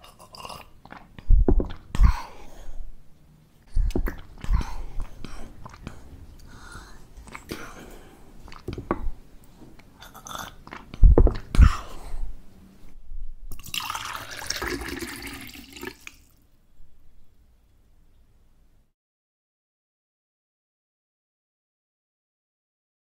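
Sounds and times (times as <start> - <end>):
person gulping water: 0.0 - 2.6, 3.7 - 9.2, 9.8 - 12.4, 13.5 - 16.3
loud low thumps: 1.3 - 2.1, 11.0 - 11.8.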